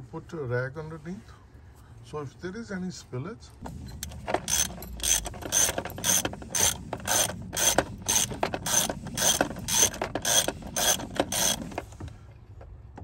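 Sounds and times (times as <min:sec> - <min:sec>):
socket ratchet clicking: 0:04.0 - 0:11.8.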